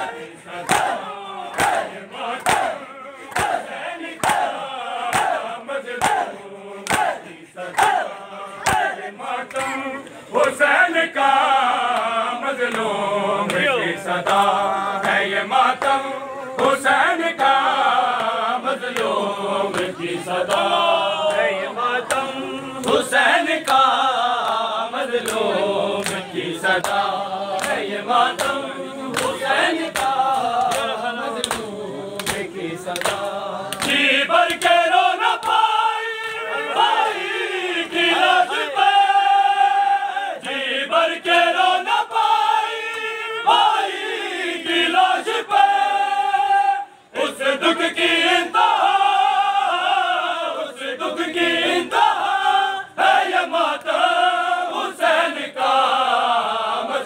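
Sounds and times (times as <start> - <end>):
men chanting in unison: 0.0 - 57.0
hands slapping bare chests: 0.6 - 9.8, 25.2 - 34.8.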